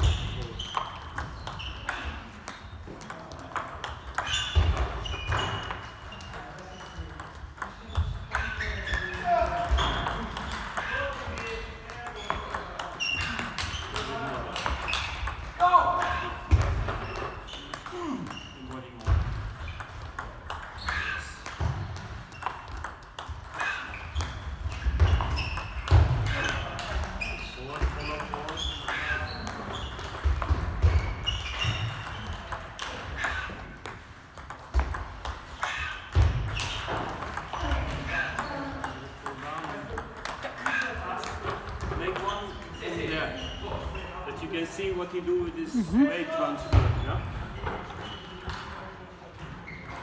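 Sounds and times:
table tennis balls clicking off bats: 0.0s - 42.8s
balls bouncing on table: 0.0s - 44.0s, 46.7s - 50.0s
short high squeaks: 4.2s - 6.9s.

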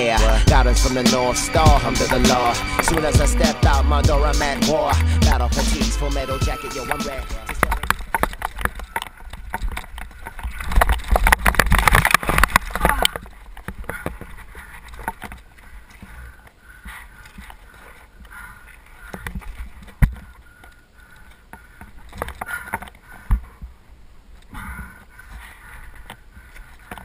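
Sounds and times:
mountain bike rattling over rocks: 6.6s - 20.8s, 21.4s - 23.7s.

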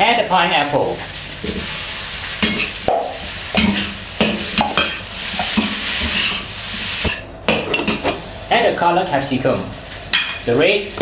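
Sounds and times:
rice sizzling in a wok: 0.0s - 11.0s
metal spatula scraping a wok: 3.6s - 8.3s.

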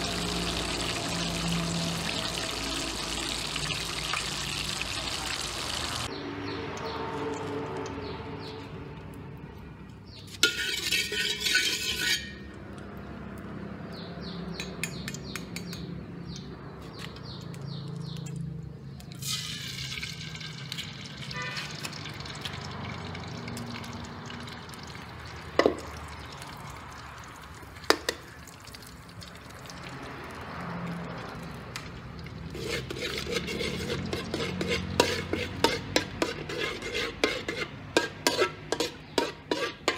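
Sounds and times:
oil frying: 0.0s - 6.1s, 10.2s - 13.6s, 19.0s - 39.9s
metal spatula scraping a wok: 10.2s - 12.5s, 32.5s - 39.9s
eggs cracking on a wok: 10.2s - 13.6s, 14.5s - 39.9s.

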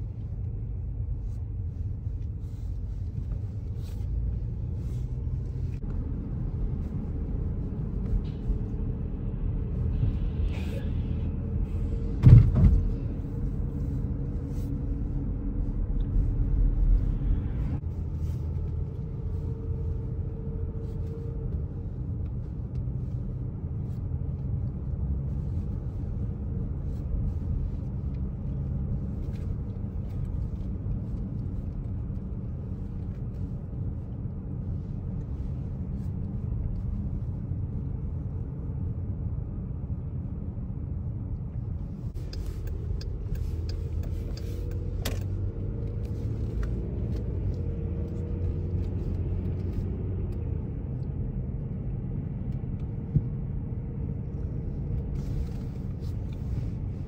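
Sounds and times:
car road noise from inside: 0.0s - 57.0s
heavy low rumble: 0.0s - 57.0s.

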